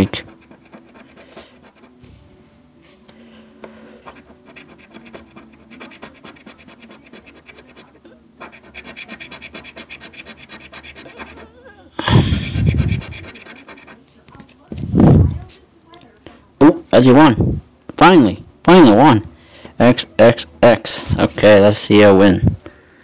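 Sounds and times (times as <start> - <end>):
coin scratching lottery ticket: 0.0 - 2.0, 3.6 - 11.6, 12.2 - 14.6.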